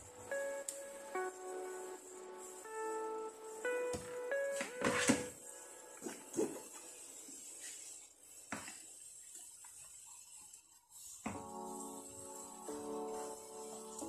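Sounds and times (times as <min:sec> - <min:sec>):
background music: 0:00.0 - 0:06.8, 0:11.3 - 0:14.0.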